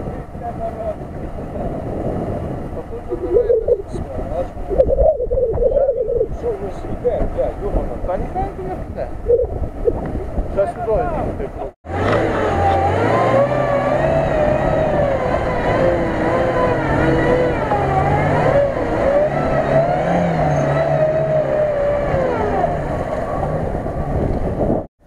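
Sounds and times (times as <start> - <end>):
car engine revving hard: 11.8 - 24.3.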